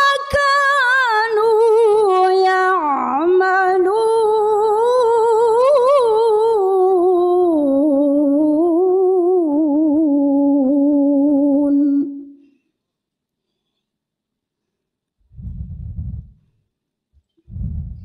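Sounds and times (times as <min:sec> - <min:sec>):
woman reciting melodically: 0:00.0 - 0:12.4.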